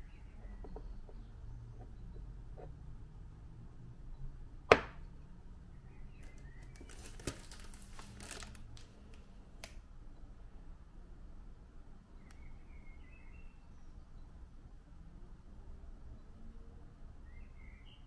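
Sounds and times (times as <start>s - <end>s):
plastic packet crinkling: 6.6s - 8.9s.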